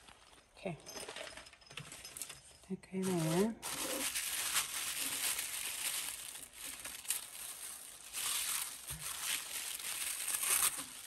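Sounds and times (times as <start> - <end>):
tissue paper crinkling: 3.0 - 11.0.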